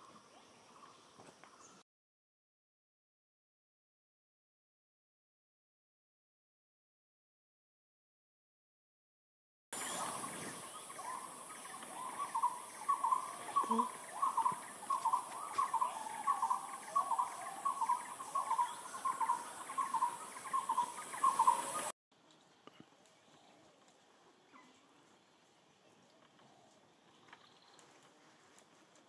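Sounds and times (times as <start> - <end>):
repeated animal call: 11.0 - 21.9.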